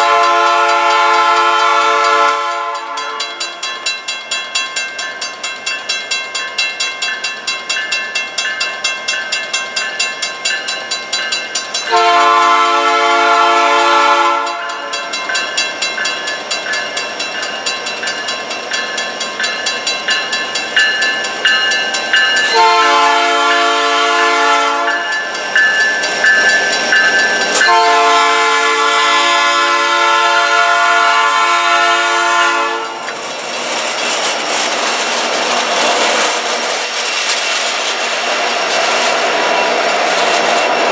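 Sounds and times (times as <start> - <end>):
train air horn blasts: 0.0 - 3.6, 11.9 - 15.2, 22.5 - 25.1, 27.6 - 33.1
crossing bell ringing: 0.0 - 35.1.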